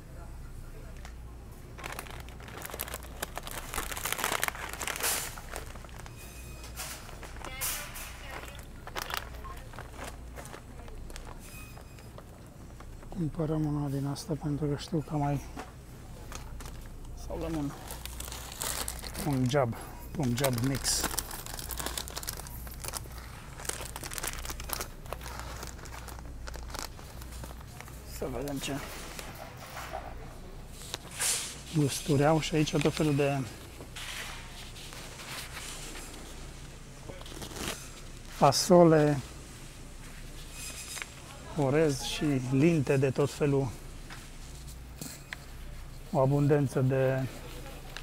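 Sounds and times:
plastic snack bag crinkling: 0:01.7 - 0:13.1, 0:16.3 - 0:29.3, 0:30.7 - 0:38.8.

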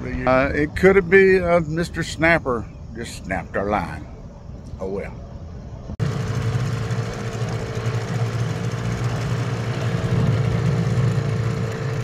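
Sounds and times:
outboard motor idling: 0:06.0 - 0:12.0.

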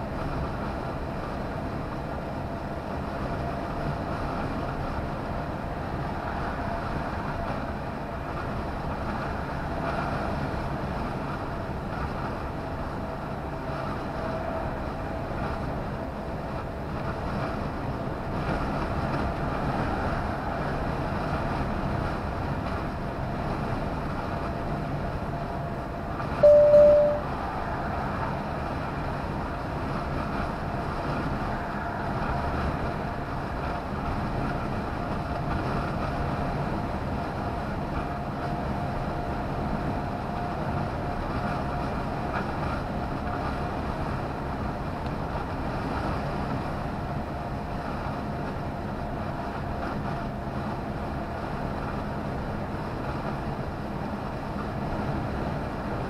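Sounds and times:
truck engine and road noise: 0:00.0 - 0:56.0
short loud beep: 0:26.4 - 0:27.3
faint steady whine: 0:26.4 - 0:27.4.

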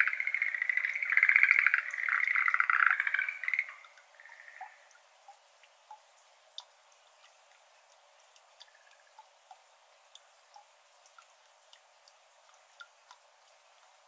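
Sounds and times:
tree frogs trilling: 0:00.0 - 0:05.0, 0:08.6 - 0:09.2
water drops falling into water: 0:00.0 - 0:14.0.

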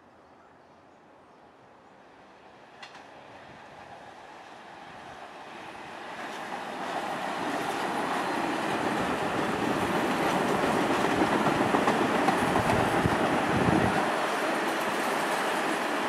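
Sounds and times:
subway train wheels rumbling: 0:02.0 - 0:16.0
wheels clacking over rail joints: 0:06.3 - 0:13.4.

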